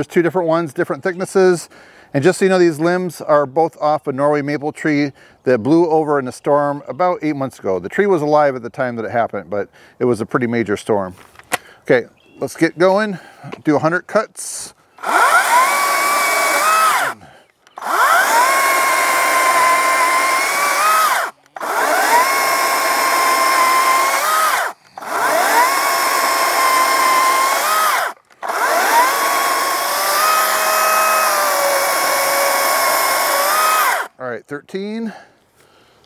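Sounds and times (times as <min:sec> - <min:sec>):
cordless chainsaw cutting wood: 0:15.0 - 0:34.2.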